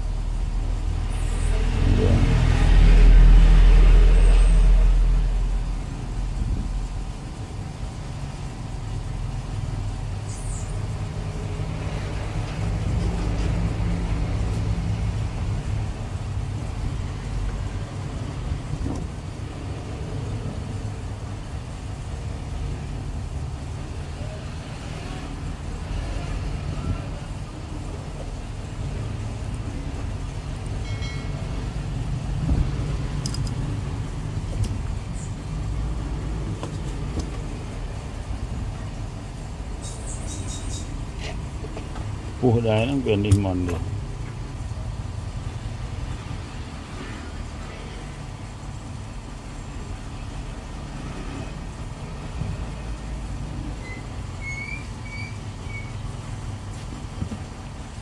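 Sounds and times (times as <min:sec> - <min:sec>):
low traffic rumble: 0:00.0 - 0:58.0
vehicle passing: 0:00.9 - 0:05.8.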